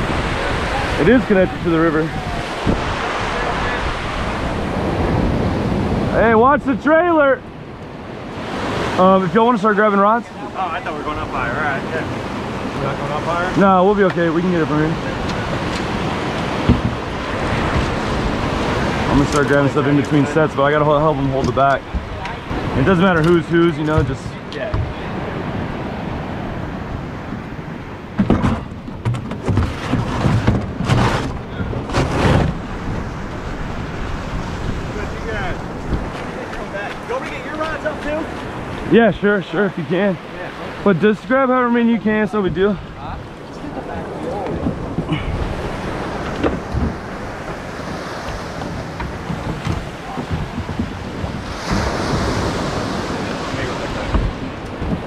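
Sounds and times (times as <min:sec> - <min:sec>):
surf: 0:00.0 - 0:55.0
wind buffeting microphone: 0:00.0 - 0:55.0
plastic containers rustling and knocking: 0:28.2 - 0:32.6, 0:48.3 - 0:52.4.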